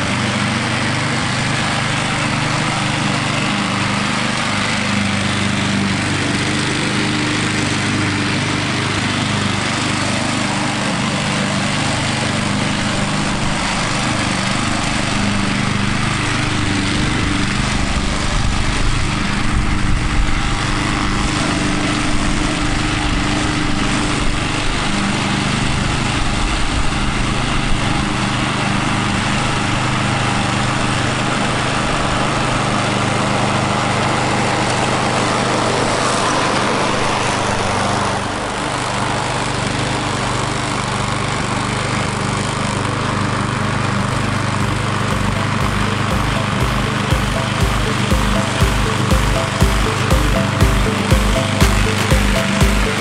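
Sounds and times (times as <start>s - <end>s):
lawn mower engine running: 0.0s - 26.6s, 40.9s - 47.6s.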